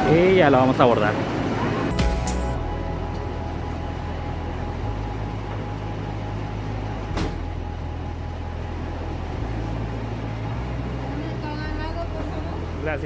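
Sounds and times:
machinery running: 0.0s - 13.0s.

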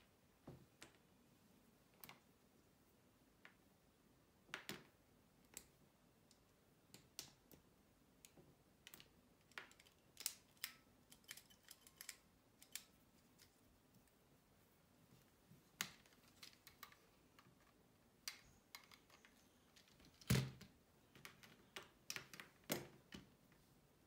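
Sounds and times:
plastic parts clicking together: 8.2s - 13.6s, 15.8s - 23.3s.

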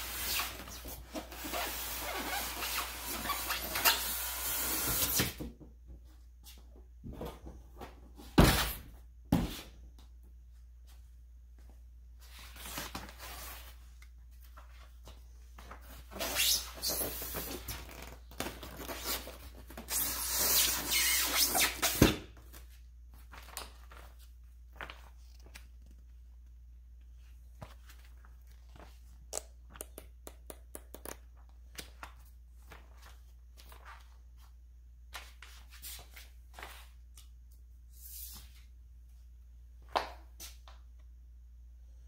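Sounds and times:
polystyrene foam squeaking: 0.0s - 5.2s, 16.2s - 18.2s, 18.8s - 22.0s.

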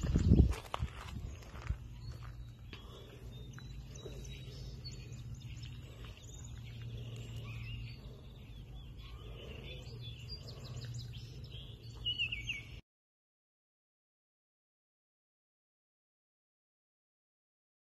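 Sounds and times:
songbirds chirping: 0.0s - 12.8s.

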